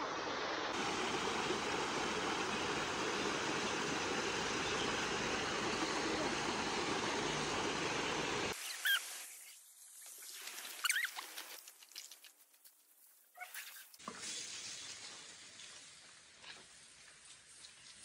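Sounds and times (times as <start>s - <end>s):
running water rushing: 0.0s - 11.7s
high squeaky bird chirps: 8.6s - 9.5s, 10.8s - 11.2s.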